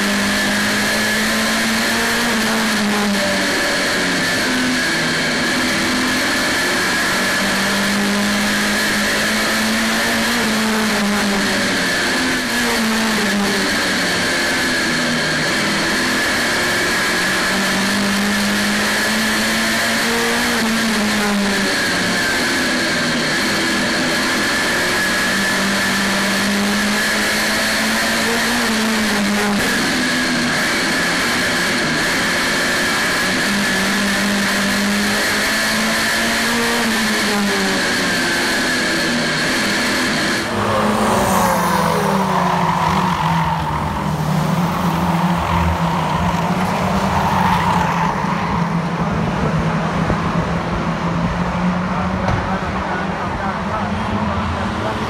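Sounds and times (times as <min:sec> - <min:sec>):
race car engine revving: 0:00.0 - 0:55.0
race cars passing by: 0:00.0 - 0:55.0
high whine: 0:37.5 - 0:55.0.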